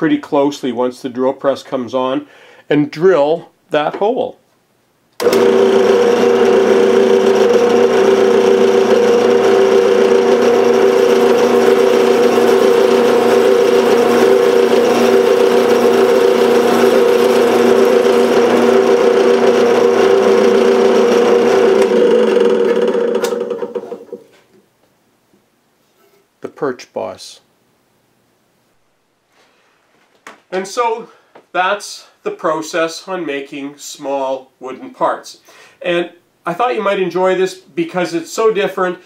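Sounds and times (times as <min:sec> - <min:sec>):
drill bit boring into wood: 0:05.2 - 0:24.0
drill press motor running: 0:05.2 - 0:24.2.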